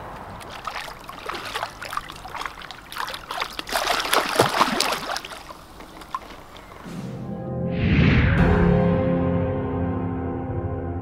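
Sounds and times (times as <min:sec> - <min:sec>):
fish splashing away: 0:00.0 - 0:06.8
water splashing and trickling: 0:00.0 - 0:06.9.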